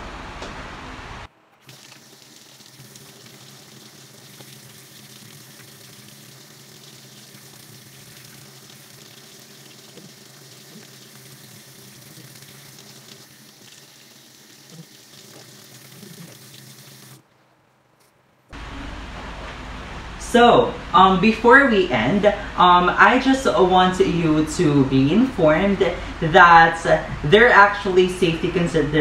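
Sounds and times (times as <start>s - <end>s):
tap water running into sink: 1.6s - 17.2s.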